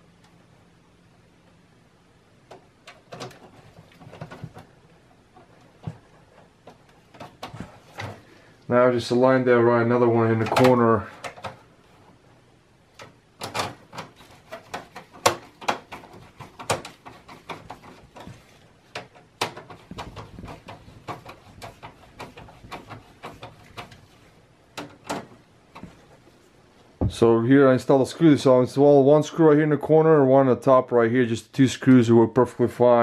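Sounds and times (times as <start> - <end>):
screwdriver clicks and scrapes on metal: 13.0 - 24.2.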